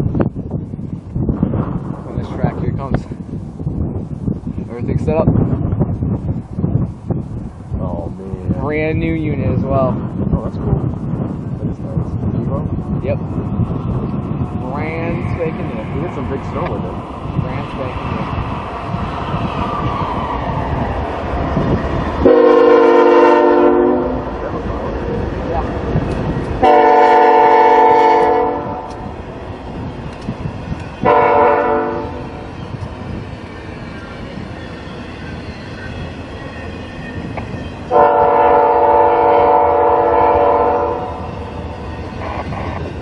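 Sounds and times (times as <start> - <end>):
freight trains rumbling past: 0.0 - 43.0
locomotive air horn: 22.2 - 24.3, 26.6 - 28.9, 31.0 - 32.2, 37.9 - 41.2.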